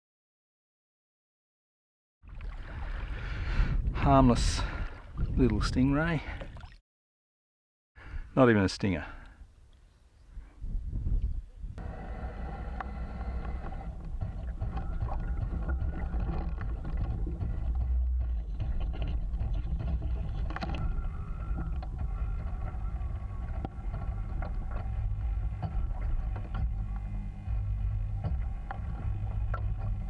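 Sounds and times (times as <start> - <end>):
water splashing against hull: 2.2 - 3.8, 4.5 - 6.8, 12.8 - 30.0
low rumble of wind and water: 2.2 - 6.8, 8.1 - 30.0.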